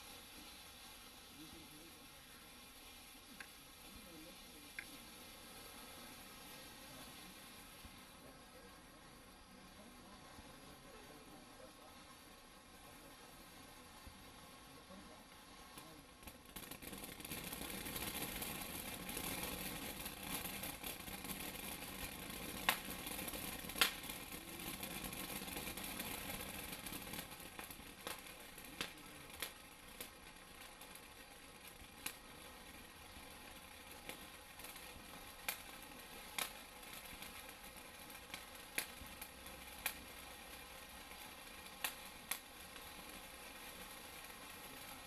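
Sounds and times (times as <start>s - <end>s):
firework sparks hissing: 0.0s - 45.0s
firework pops: 2.6s - 5.1s, 14.9s - 45.0s.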